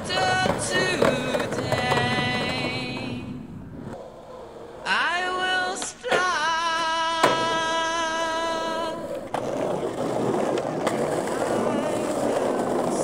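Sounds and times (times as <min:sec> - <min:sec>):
skateboard clacking on concrete: 0:00.0 - 0:03.2, 0:09.1 - 0:13.0
skateboard wheels rolling on pavement: 0:00.0 - 0:06.4, 0:07.2 - 0:13.0.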